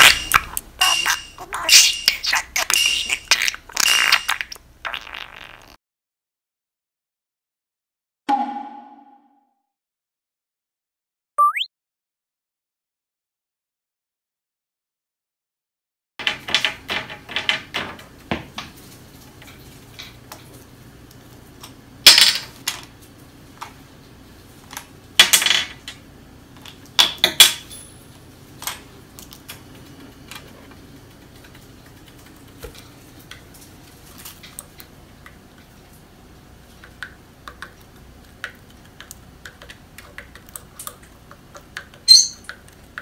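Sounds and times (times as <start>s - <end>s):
plastic toys clattering on glass: 0.0s - 4.5s.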